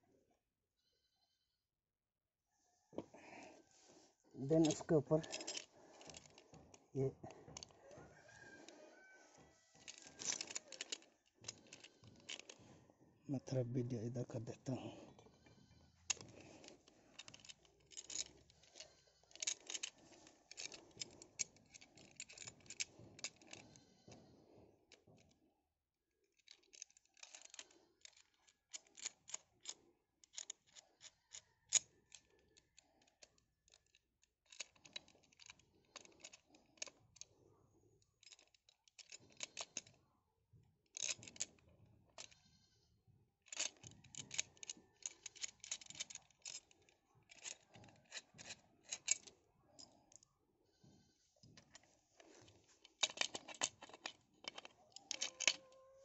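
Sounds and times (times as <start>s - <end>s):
metal parts clinking: 4.4s - 7.8s, 9.7s - 12.7s, 14.4s - 24.1s, 26.3s - 31.1s, 31.7s - 37.3s, 38.2s - 40.0s, 40.9s - 42.4s, 43.4s - 50.2s, 50.8s - 56.0s.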